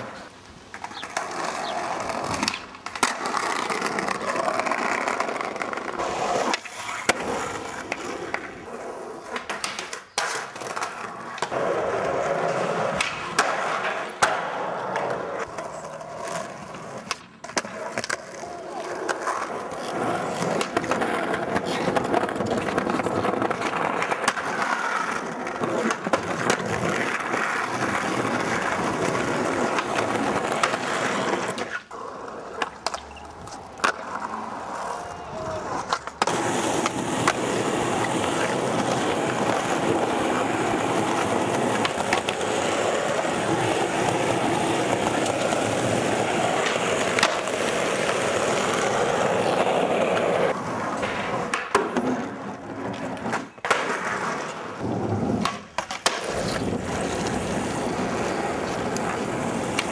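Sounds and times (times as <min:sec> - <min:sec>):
skateboard pops and landings: 0:00.0 - 0:15.7, 0:16.3 - 0:31.9, 0:35.6 - 0:59.9
skateboard wheels rolling on concrete: 0:00.0 - 0:59.9
skateboard grinding on a ledge: 0:35.6 - 0:59.9.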